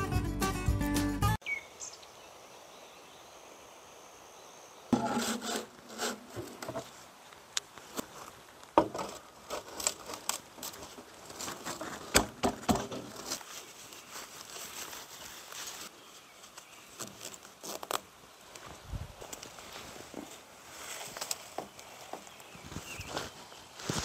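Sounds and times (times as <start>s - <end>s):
knocks and rustling on dry ground: 5.0s - 24.0s.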